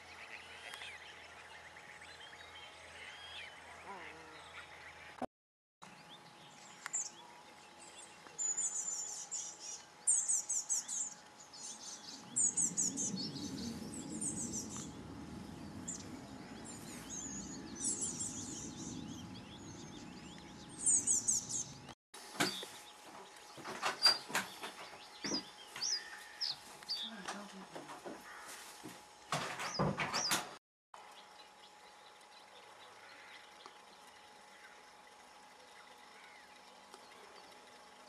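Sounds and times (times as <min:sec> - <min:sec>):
low rumble: 0:11.6 - 0:22.0.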